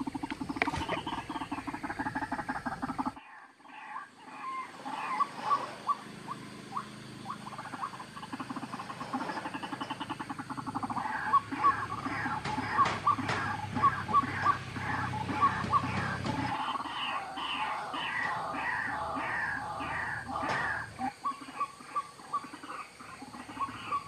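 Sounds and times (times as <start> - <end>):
recorded bird call pulsing: 0.0 - 24.0.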